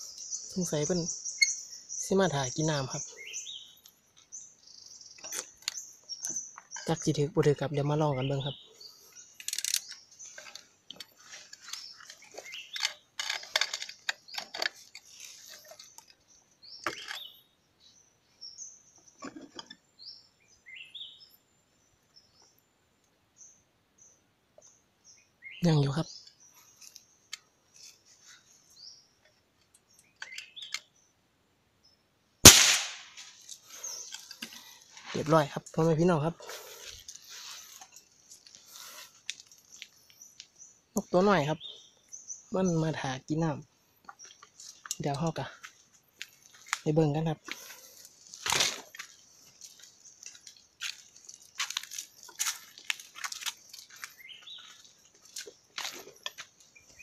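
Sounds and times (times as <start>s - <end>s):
faint bird chirps: 0.0s - 31.2s
sharp gunshot: 32.5s - 33.3s
footsteps crunching through dry leaves: 47.5s - 57.0s.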